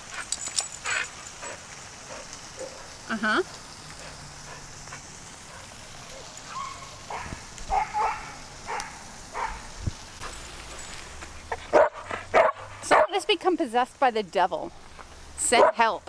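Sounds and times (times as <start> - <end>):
steady background hiss: 0.0 - 16.0
small dog yipping and barking: 6.5 - 9.6.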